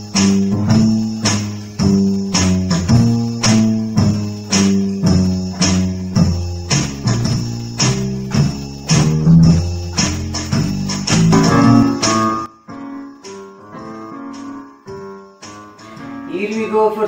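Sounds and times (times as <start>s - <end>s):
low bass notes: 0.0s - 12.5s
electronic keyboard tune: 0.0s - 17.0s.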